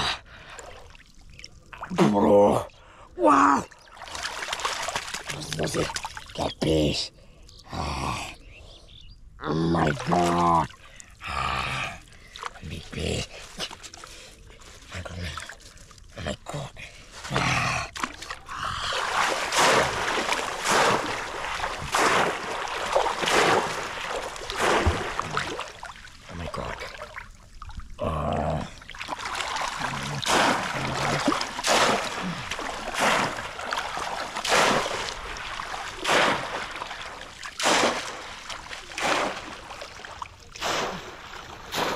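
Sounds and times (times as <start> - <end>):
hands splashing shallow water: 3.8 - 6.4, 17.2 - 27.8, 28.8 - 41.9.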